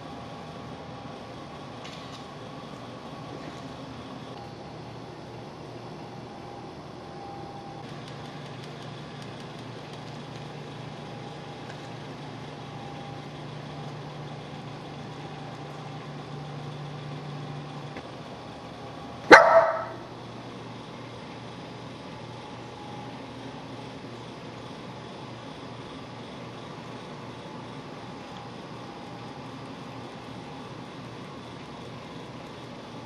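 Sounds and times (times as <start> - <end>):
small dog barking: 19.3 - 20.1.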